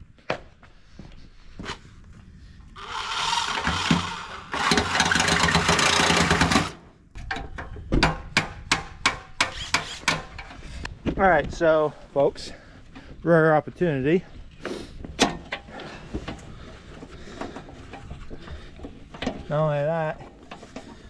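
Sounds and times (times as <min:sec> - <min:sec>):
cordless power tool running: 0:02.8 - 0:06.8
sharp knocks: 0:07.3 - 0:10.3.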